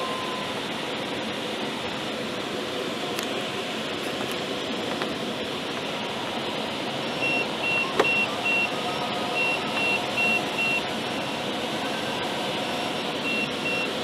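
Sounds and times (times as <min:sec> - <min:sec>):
airflow rushing in cockpit: 0:00.0 - 0:14.0
variometer short high beeps: 0:07.2 - 0:08.7, 0:09.4 - 0:10.8, 0:13.2 - 0:14.0.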